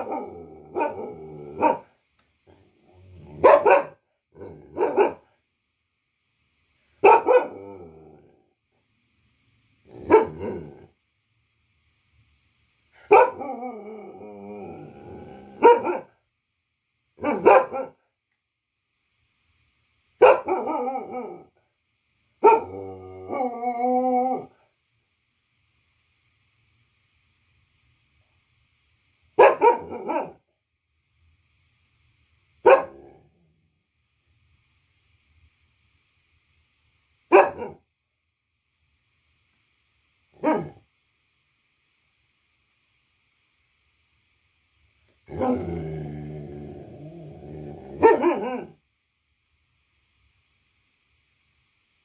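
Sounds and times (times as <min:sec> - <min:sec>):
dog barking: 0:00.0 - 0:01.9, 0:03.4 - 0:04.0, 0:04.7 - 0:05.3, 0:07.0 - 0:07.6, 0:10.0 - 0:10.6, 0:13.0 - 0:13.5, 0:15.6 - 0:16.2, 0:17.2 - 0:18.0, 0:20.2 - 0:21.2, 0:22.4 - 0:22.7, 0:29.4 - 0:30.4, 0:32.6 - 0:33.1, 0:37.3 - 0:37.8, 0:40.4 - 0:40.8, 0:48.0 - 0:48.8
dog howling: 0:20.4 - 0:21.5, 0:22.5 - 0:24.6.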